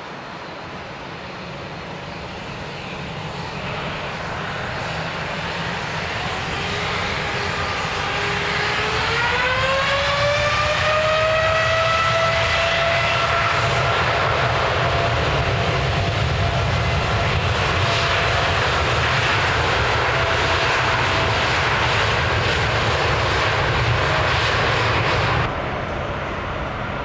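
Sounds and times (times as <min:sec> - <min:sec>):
jet engines spooling up: 0:00.2 - 0:27.0.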